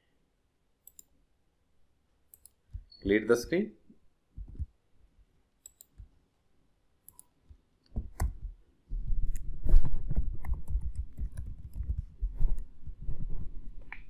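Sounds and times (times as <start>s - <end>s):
mouse clicks: 0.8s - 1.1s, 2.3s - 3.0s, 5.6s - 6.1s, 7.0s - 8.4s
rapid keyboard typing: 10.4s - 12.4s.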